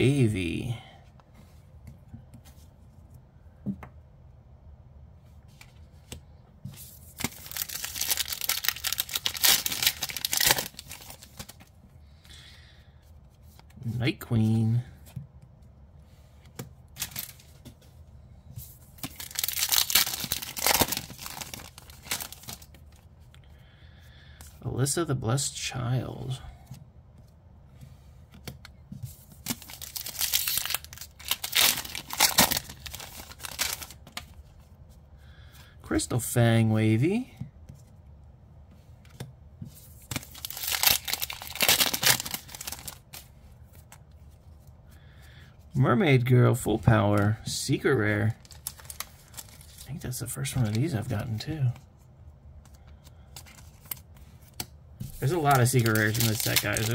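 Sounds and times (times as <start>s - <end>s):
cards rustling: 5.5s - 11.8s, 16.2s - 18.0s, 18.6s - 23.4s, 26.2s - 34.7s, 38.7s - 44.7s, 46.6s - 51.8s, 52.6s - 56.9s
foil wrapper crinkling and tearing: 7.2s - 11.6s, 19.0s - 22.7s, 29.5s - 34.1s, 40.1s - 43.2s, 48.4s - 49.9s, 55.2s - 56.9s.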